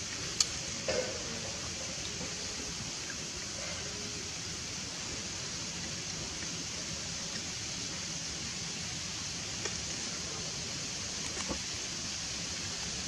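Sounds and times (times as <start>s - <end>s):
steady background hiss: 0.0s - 13.0s.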